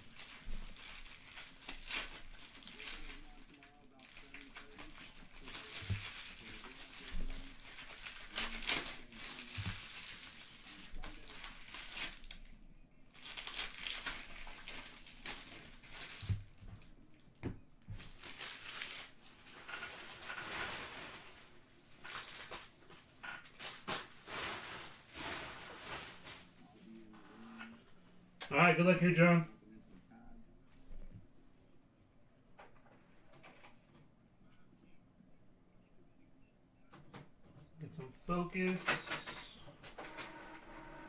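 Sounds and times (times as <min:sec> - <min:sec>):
wrapping paper crumpling: 0:00.0 - 0:17.2, 0:17.9 - 0:27.0.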